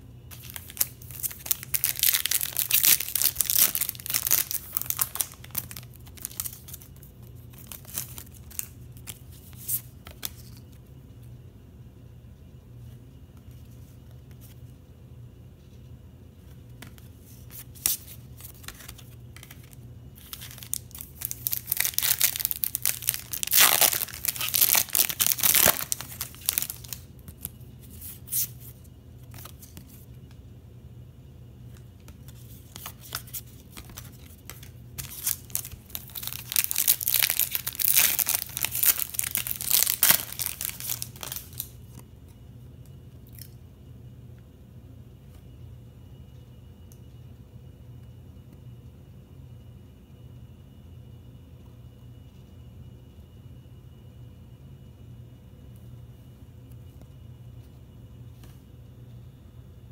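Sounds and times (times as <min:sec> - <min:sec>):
wrappers tearing and crinkling: 0:00.3 - 0:06.9, 0:17.8 - 0:28.5, 0:32.8 - 0:41.8
handling of cards: 0:00.3 - 0:10.9, 0:16.4 - 0:30.4, 0:31.7 - 0:42.0.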